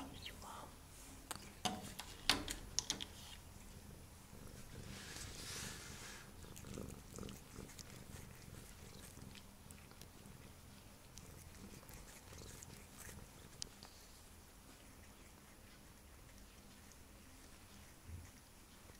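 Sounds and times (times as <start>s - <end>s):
cat licking its paw: 4.6s - 18.9s.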